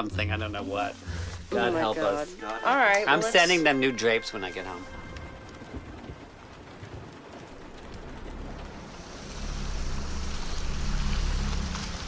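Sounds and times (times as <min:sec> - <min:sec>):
heavy rain hissing: 0:00.0 - 0:12.0
low rumble: 0:04.2 - 0:12.0.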